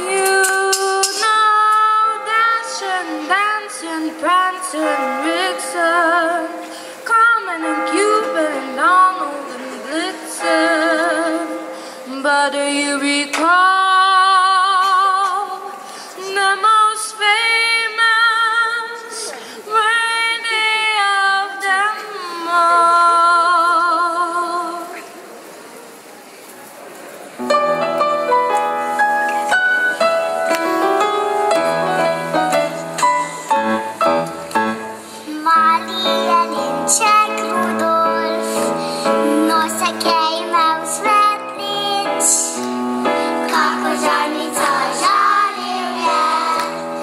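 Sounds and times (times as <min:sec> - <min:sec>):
girl singing into microphone: 0:00.0 - 0:25.0, 0:35.0 - 0:47.0.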